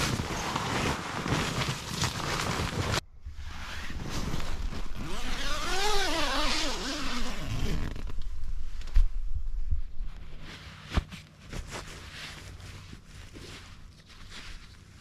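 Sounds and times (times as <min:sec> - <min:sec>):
tent zip pulled open: 0:00.0 - 0:08.2.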